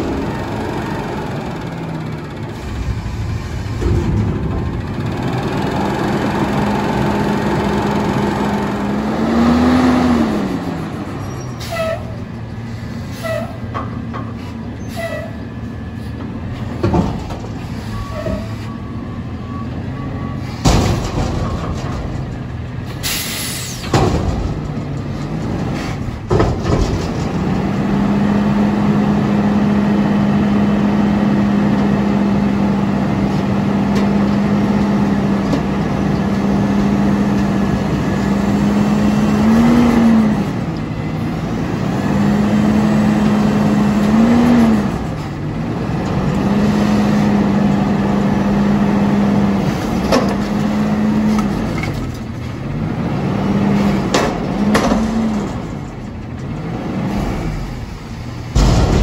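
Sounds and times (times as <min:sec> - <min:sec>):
truck engine running: 0:00.0 - 0:13.0, 0:18.8 - 0:59.0
loud bangs: 0:02.3 - 0:07.7, 0:58.5 - 0:59.0.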